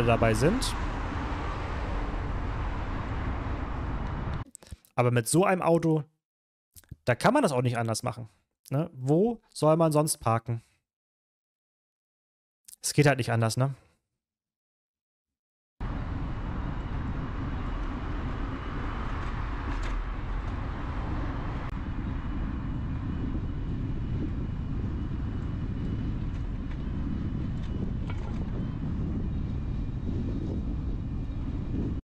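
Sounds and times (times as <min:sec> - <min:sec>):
rolling road noise: 0:00.0 - 0:04.4, 0:15.8 - 0:32.0
wind rushing on microphone: 0:00.0 - 0:04.4, 0:15.8 - 0:32.0.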